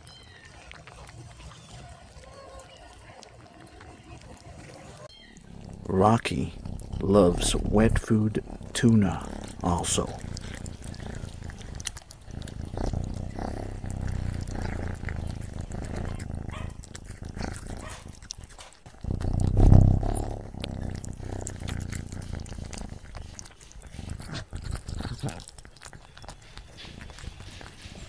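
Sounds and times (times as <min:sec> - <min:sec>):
kitten chewing and licking: 0:00.0 - 0:28.0
low rumble: 0:19.1 - 0:21.1.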